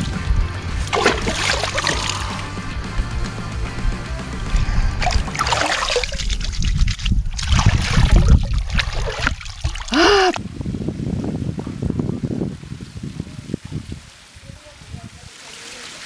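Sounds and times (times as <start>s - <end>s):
river water splashing and trickling: 0.7s - 2.6s, 5.0s - 10.8s, 12.6s - 16.0s.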